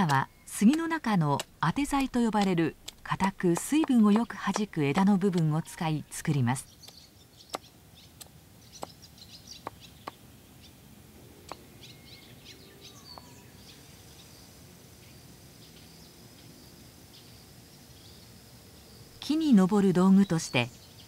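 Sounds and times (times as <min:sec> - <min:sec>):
hatchet chopping wood: 0:00.0 - 0:05.6, 0:06.2 - 0:09.0
birds chirping: 0:00.0 - 0:21.0.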